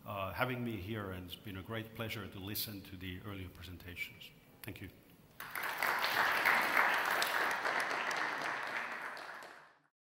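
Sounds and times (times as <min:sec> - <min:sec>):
audience applauding: 0:05.4 - 0:09.9.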